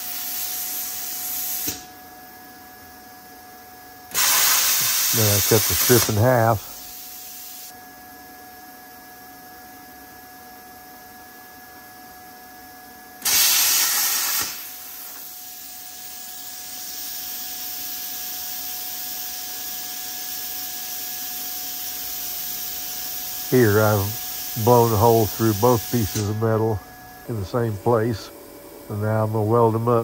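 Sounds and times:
plasma cutter hissing blast: 0.0 - 1.9, 4.1 - 7.7, 13.2 - 26.4
air hiss: 4.1 - 7.7, 13.2 - 15.6, 16.6 - 26.8
faint steady whine: 5.1 - 13.3, 14.5 - 30.0.

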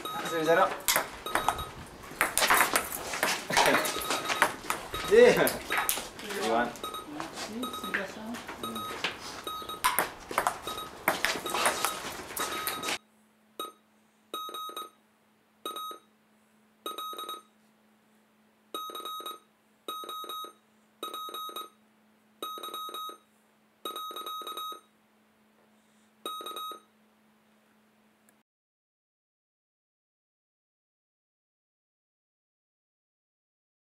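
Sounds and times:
short electronic beeps: 0.0 - 0.6, 1.2 - 1.8, 3.8 - 5.9, 6.8 - 8.0, 8.6 - 10.0, 10.6 - 13.0, 13.6 - 13.8, 14.4 - 15.0, 15.6 - 16.1, 16.8 - 17.5, 18.8 - 21.8, 22.4 - 23.2, 23.8 - 24.9, 26.2 - 26.9.

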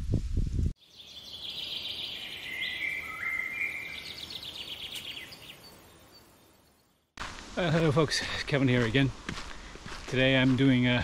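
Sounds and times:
walking through reeds: 7.2 - 11.0.

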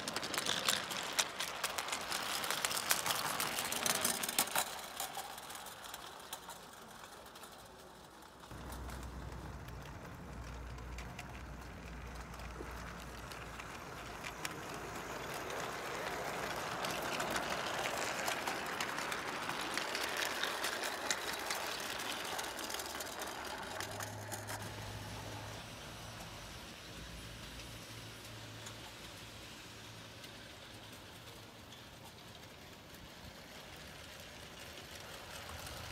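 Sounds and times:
model train wheels clattering: 0.0 - 35.9.

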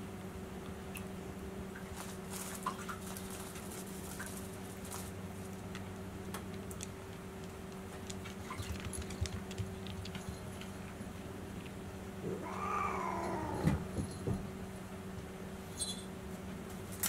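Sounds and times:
low steady hum: 0.0 - 17.0
cat meowing: 12.3 - 13.8.

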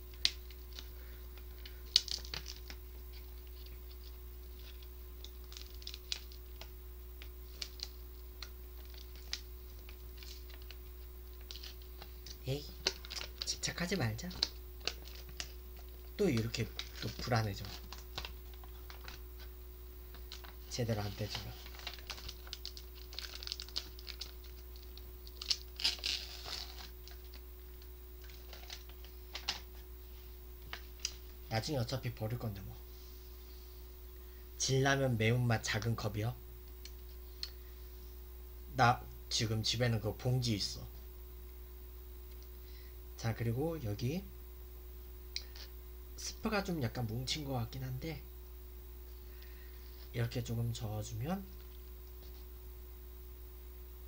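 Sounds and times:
packaging crinkling and tearing: 0.1 - 19.5, 20.1 - 29.8.

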